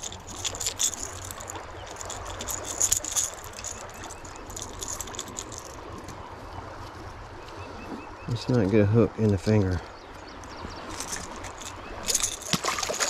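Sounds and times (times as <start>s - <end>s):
fishing lure rattles clicking: 0.0s - 5.7s.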